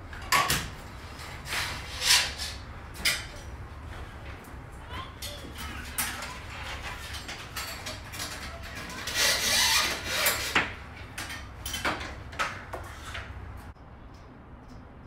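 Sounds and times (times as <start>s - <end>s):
hands rubbing and scraping hardware: 5.4s - 10.8s.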